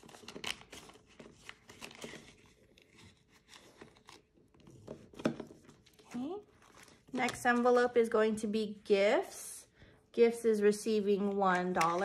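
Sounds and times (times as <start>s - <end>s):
plastic envelopes crinkling: 0.0s - 4.6s.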